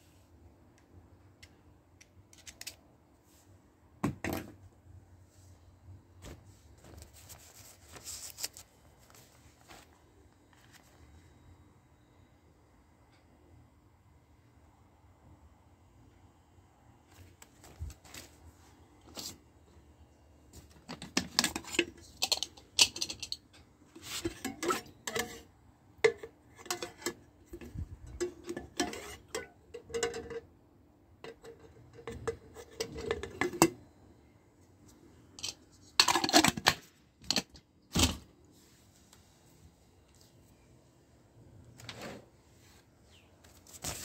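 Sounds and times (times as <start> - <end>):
metal coffee pot parts clinking: 20.9 - 30.5, 31.2 - 33.8, 35.4 - 38.1.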